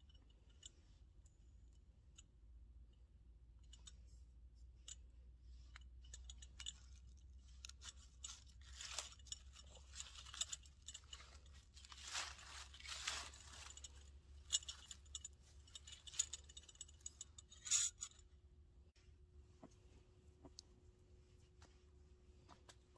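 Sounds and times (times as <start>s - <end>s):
rustling: 5.5s - 18.3s.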